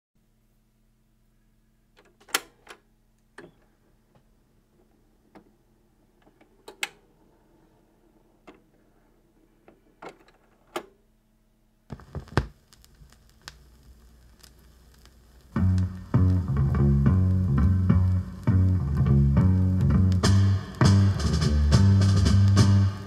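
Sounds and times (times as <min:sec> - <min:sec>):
record surface hiss: 0:00.2 - 0:23.0
stylus thumps: 0:11.9 - 0:13.3.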